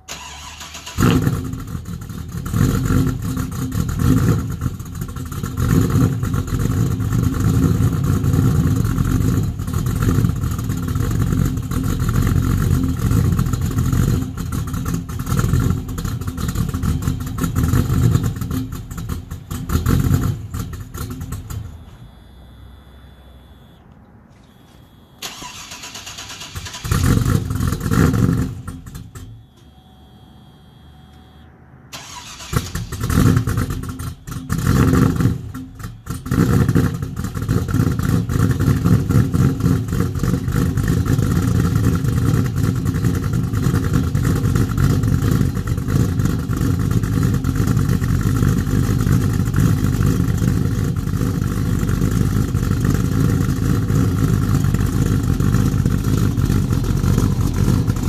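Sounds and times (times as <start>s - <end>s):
engine idling loud exhaust: 0.0s - 23.8s, 24.5s - 58.0s
engine starting and revving: 0.0s - 23.8s, 24.5s - 29.9s, 30.6s - 58.0s.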